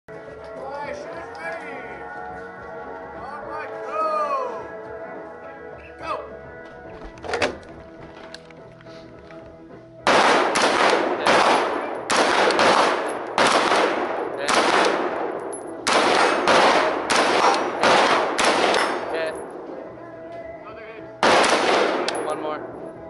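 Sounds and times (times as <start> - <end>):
handgun shots with echo: 10.1 - 19.5, 21.2 - 22.4.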